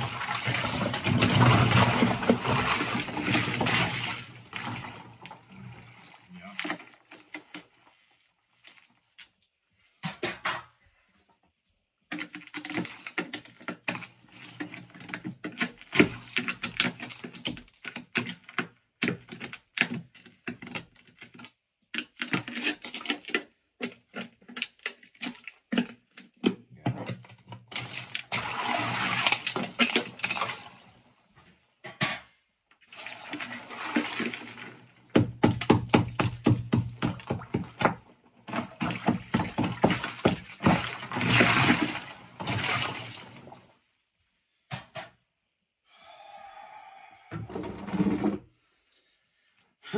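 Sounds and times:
water sloshing and splashing: 0:00.0 - 0:09.5, 0:12.1 - 0:18.5, 0:27.2 - 0:31.6, 0:32.8 - 0:43.9
tool knocking and cracking ice: 0:12.1 - 0:28.4, 0:35.1 - 0:42.6.

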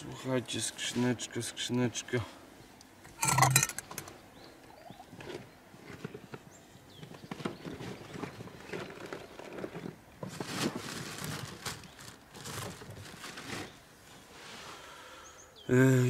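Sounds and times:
rattling and rustling: 0:03.1 - 0:04.2, 0:05.2 - 0:13.7.

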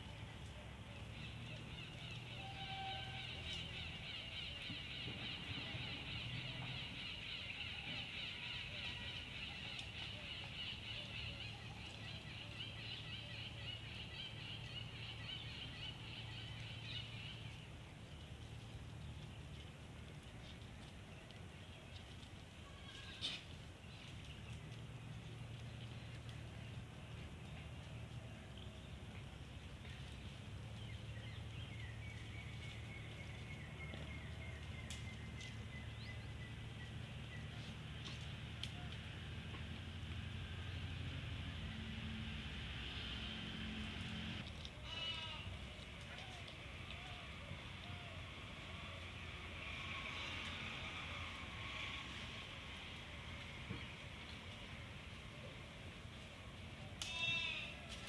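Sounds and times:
small birds chirping: 0:00.1 - 0:42.0.

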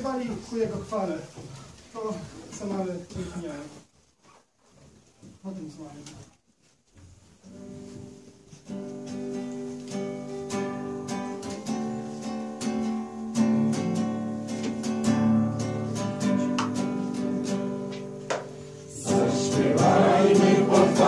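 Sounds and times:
acoustic guitar strumming chords: 0:08.7 - 0:21.0.

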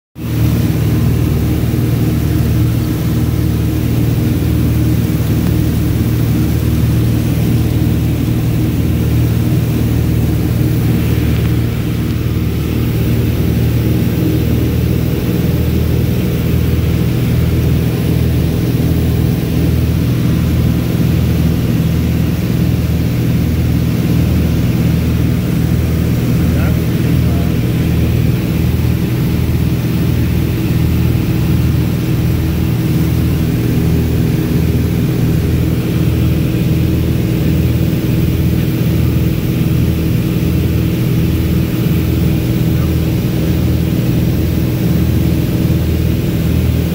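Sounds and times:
propeller airplane engine droning: 0:00.2 - 0:46.9.

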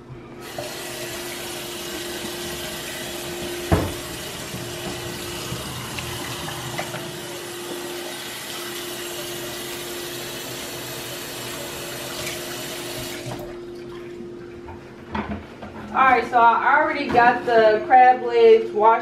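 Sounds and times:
faucet running into sink: 0:00.4 - 0:13.5
hands washing under water: 0:00.4 - 0:14.0.

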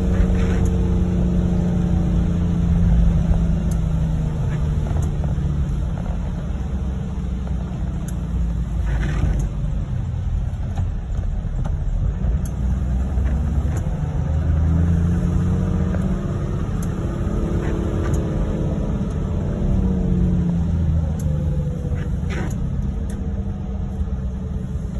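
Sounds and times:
vehicle rumbling on wet road: 0:00.0 - 0:24.9
light ticks: 0:03.2 - 0:06.1, 0:07.4 - 0:09.8, 0:10.5 - 0:14.4, 0:15.9 - 0:19.4, 0:20.5 - 0:23.3.

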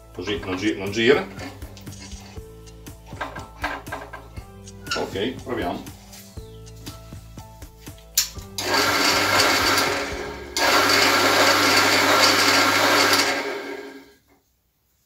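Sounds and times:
pillar drill running: 0:08.6 - 0:14.1.

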